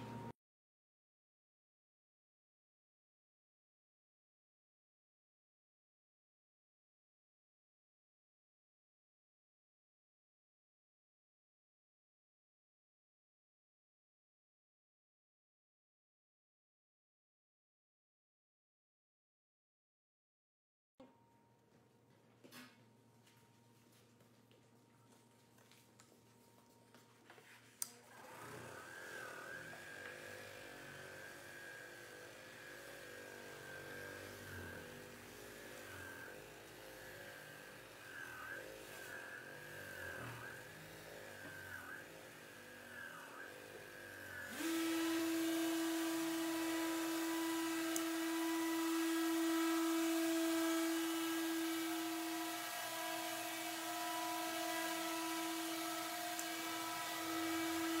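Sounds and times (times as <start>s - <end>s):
electric sander motor whine: 28.0s - 58.0s.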